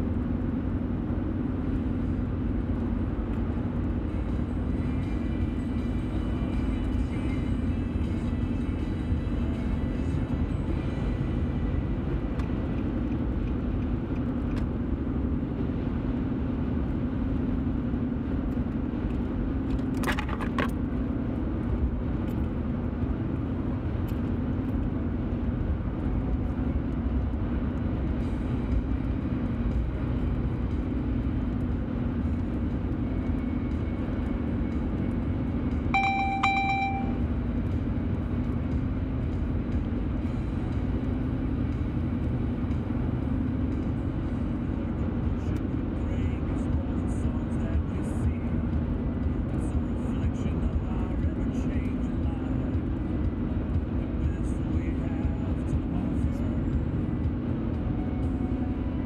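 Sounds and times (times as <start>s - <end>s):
car road noise rumble: 0.0s - 59.0s
pitched beeping: 36.0s - 37.2s.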